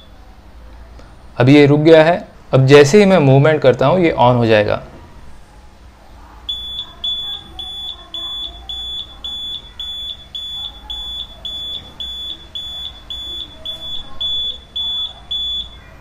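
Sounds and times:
high-pitched buzzer beeping: 6.5s - 16.0s.

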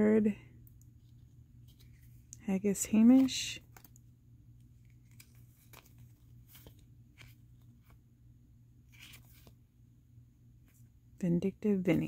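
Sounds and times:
trading cards rustling and clicking: 0.8s - 8.0s, 8.9s - 9.6s
cards scraping: 4.7s - 8.0s, 8.9s - 9.6s.

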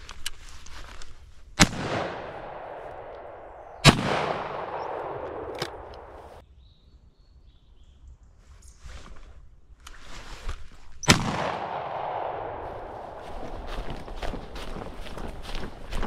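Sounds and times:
shotgun shots with echo: 1.6s - 6.2s, 11.1s - 13.2s.

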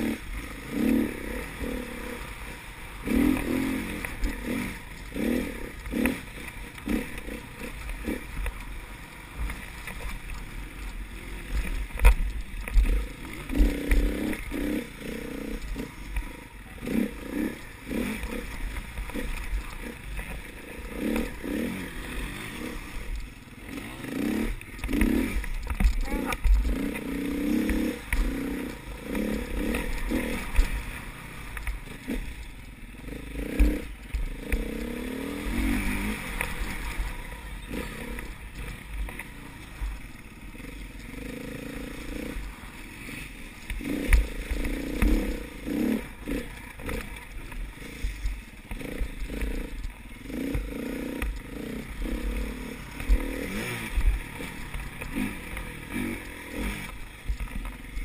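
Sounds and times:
dirt bike engine revving: 0.0s - 58.0s
bike knocking and rattling: 2.8s - 58.0s.

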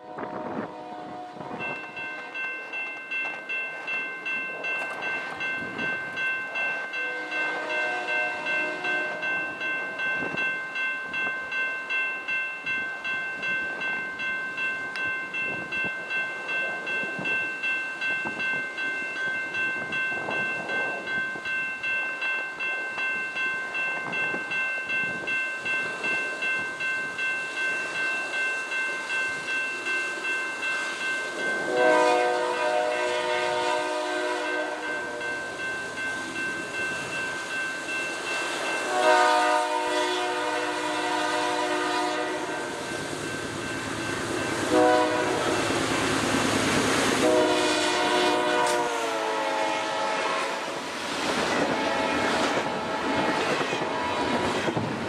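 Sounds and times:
train horn: 0.0s - 2.4s, 7.0s - 9.5s, 31.7s - 35.3s, 38.8s - 42.8s, 44.6s - 45.7s, 47.2s - 50.8s, 51.6s - 54.7s
wind noise: 0.0s - 7.0s, 9.1s - 11.6s, 12.6s - 28.3s, 50.6s - 55.0s
crossing bell ringing: 0.0s - 55.0s.

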